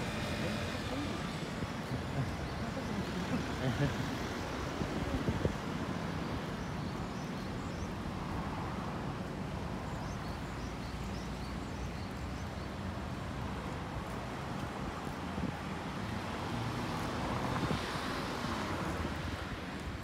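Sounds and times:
traffic noise: 0:00.0 - 0:20.0
wind on microphone: 0:04.6 - 0:06.0, 0:17.2 - 0:20.0.

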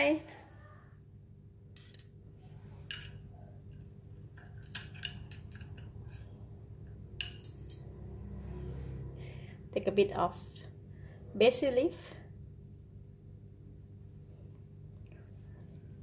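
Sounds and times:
low steady hum: 0:00.0 - 0:16.0
cutlery clinking on shells and china: 0:04.4 - 0:06.3, 0:07.2 - 0:07.9.

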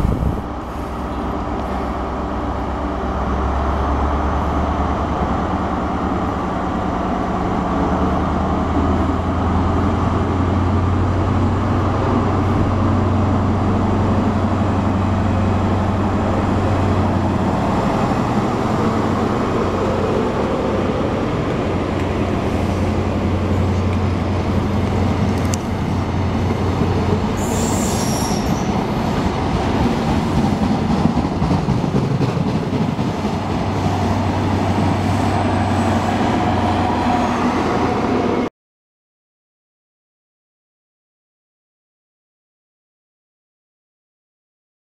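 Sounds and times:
diesel locomotive engine drone: 0:00.0 - 0:38.5
train coaches rumbling over rails: 0:00.0 - 0:38.5
high-pitched wheel squeal: 0:27.4 - 0:28.8.

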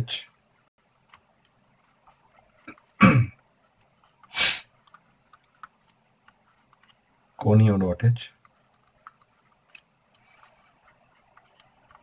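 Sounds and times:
marker writing on paper: 0:00.4 - 0:07.1, 0:08.4 - 0:12.0
person clearing throat: 0:02.7 - 0:03.4
person sniffing: 0:04.3 - 0:04.7.

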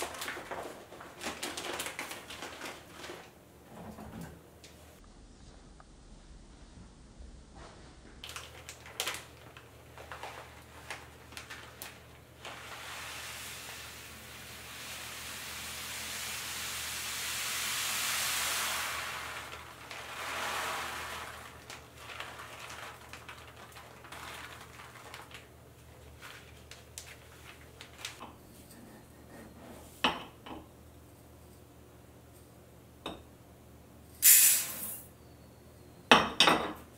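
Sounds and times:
plastic bag rustling: 0:00.0 - 0:03.8, 0:08.2 - 0:14.7, 0:18.6 - 0:28.2
rice grains pouring into glass jar: 0:10.0 - 0:28.2.

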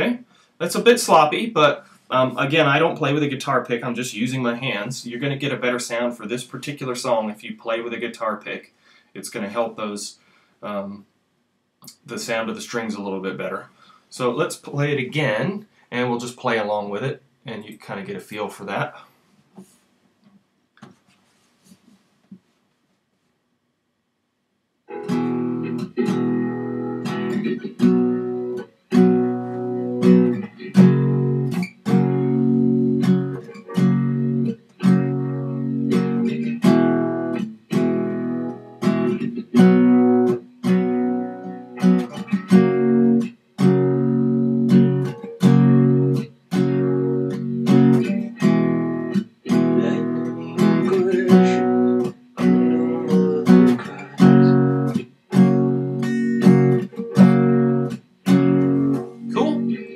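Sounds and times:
acoustic guitar strumming: 0:24.9 - 0:59.9.

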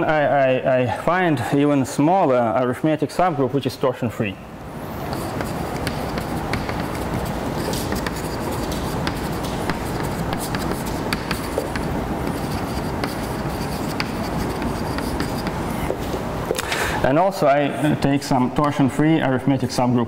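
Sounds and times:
steady background noise: 0:00.0 - 0:20.0
chalk writing on blackboard: 0:04.9 - 0:16.0.

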